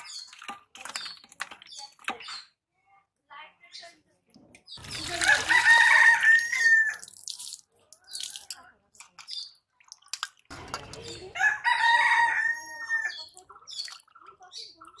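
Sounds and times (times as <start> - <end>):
water gushing into a steel bowl: 4.8 - 11.4
rooster crowing: 5.3 - 7.0, 11.4 - 13.1.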